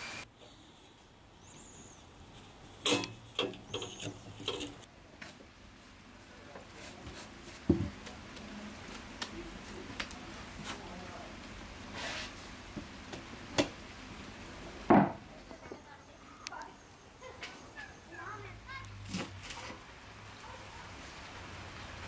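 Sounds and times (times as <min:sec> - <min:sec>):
hands working bread dough: 0:01.8 - 0:13.8.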